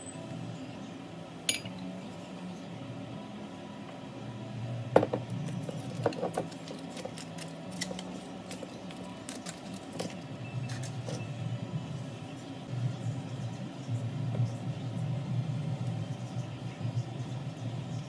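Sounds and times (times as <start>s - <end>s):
low steady hum: 0.0s - 18.0s
foil crinkling: 5.8s - 11.0s
foil tearing: 6.5s - 11.0s.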